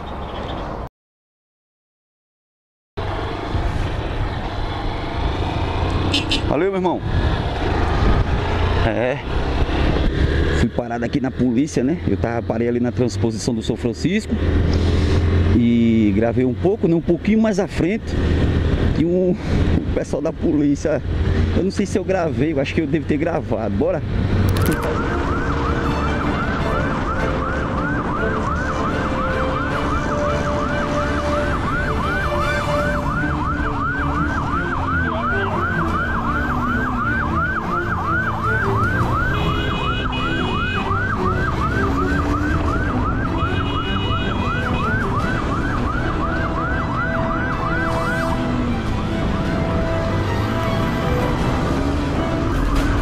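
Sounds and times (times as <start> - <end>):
vehicle running: 3.0 - 53.0
police siren yelping: 24.5 - 53.0.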